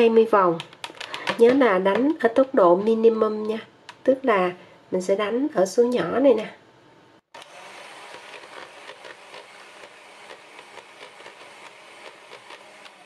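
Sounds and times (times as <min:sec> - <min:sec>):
electric hand mixer whisking: 0:07.4 - 0:13.0.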